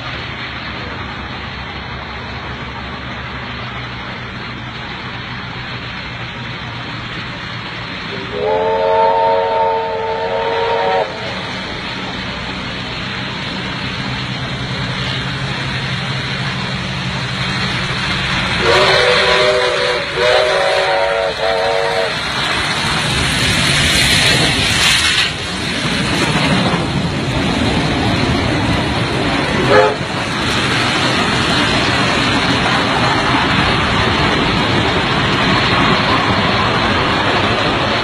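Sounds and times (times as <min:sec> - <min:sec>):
steam engines rumbling and hissing: 0:00.0 - 0:38.0
steam locomotive whistle: 0:08.1 - 0:11.4, 0:18.6 - 0:22.2, 0:29.7 - 0:30.0.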